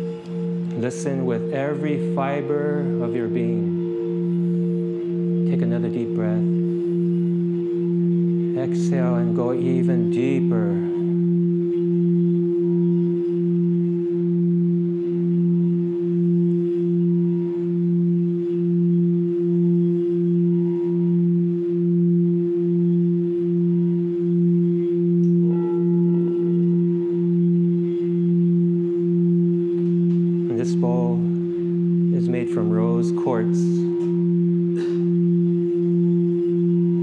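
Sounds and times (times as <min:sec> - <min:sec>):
singing bowl tone: 0:00.0 - 0:37.0
man talking: 0:00.7 - 0:03.8, 0:05.5 - 0:06.6, 0:08.6 - 0:11.0, 0:30.5 - 0:31.4, 0:32.1 - 0:34.0.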